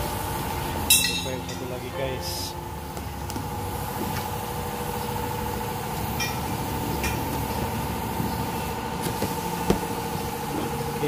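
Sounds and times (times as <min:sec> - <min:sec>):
steady motor hum: 0:00.0 - 0:11.0.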